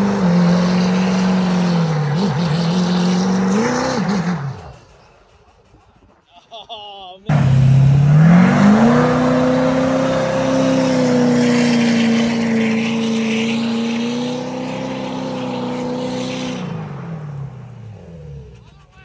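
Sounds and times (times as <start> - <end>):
pickup engine revving hard: 0.0 - 4.6, 7.3 - 18.2.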